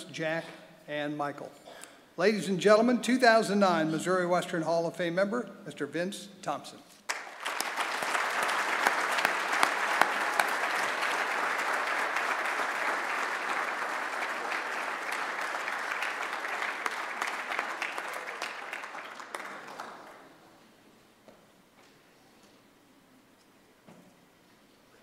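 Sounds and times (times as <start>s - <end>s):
audience applauding: 7.1s - 20.4s.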